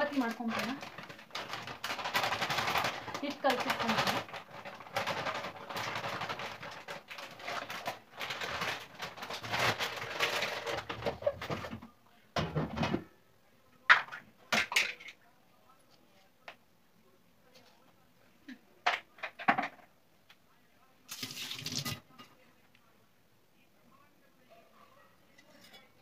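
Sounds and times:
plastic packet crinkling: 0:00.0 - 0:11.1, 0:21.1 - 0:22.0
flour pouring into metal bowl: 0:21.1 - 0:22.0.

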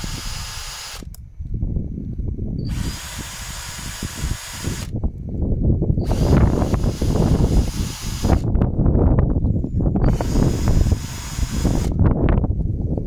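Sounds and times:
drill motor whine: 0:00.0 - 0:01.2, 0:02.6 - 0:04.9, 0:06.0 - 0:08.5, 0:10.0 - 0:12.0.

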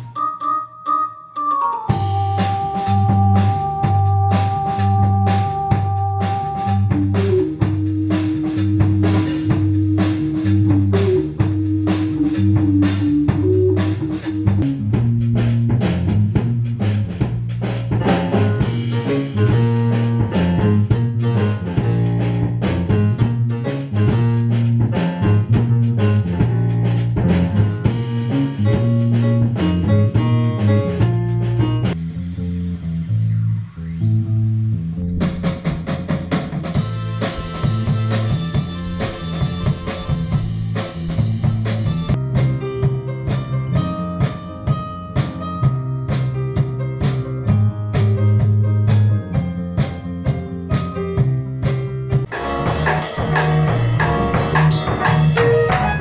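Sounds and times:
melody line: 0:00.0 - 0:07.7
drum kit steady beat: 0:01.9 - 0:32.0, 0:35.1 - 0:56.0
repeating bass line: 0:01.9 - 0:42.2, 0:52.3 - 0:56.0.

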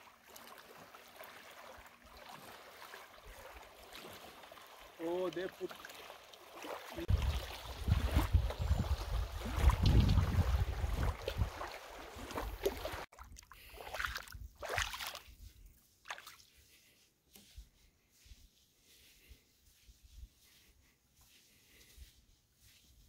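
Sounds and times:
paddle splashes: 0:00.0 - 0:16.9
water sloshing around kayak: 0:00.0 - 0:18.2
wind rumbling on microphone: 0:07.1 - 0:13.1.

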